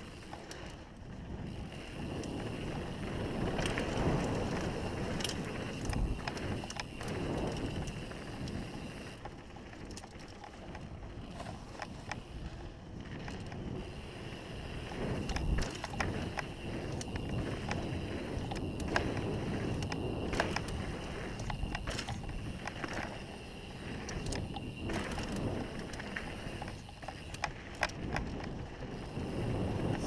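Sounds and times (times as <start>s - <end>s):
bike rattling: 0.0s - 30.0s
bike tyres rumbling on gravel: 0.0s - 30.0s
wind hiss on microphone: 13.7s - 30.0s.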